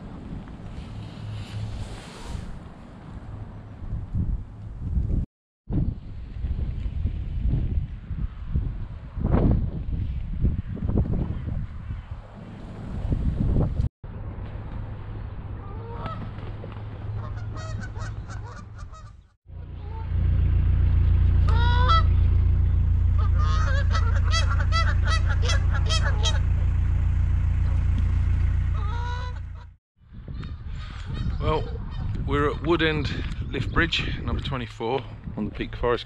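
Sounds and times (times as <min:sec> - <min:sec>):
low rumble: 0:12.6 - 0:32.3
geese honking: 0:15.6 - 0:16.4, 0:17.1 - 0:20.2, 0:21.4 - 0:22.2, 0:23.1 - 0:26.6, 0:28.7 - 0:29.8.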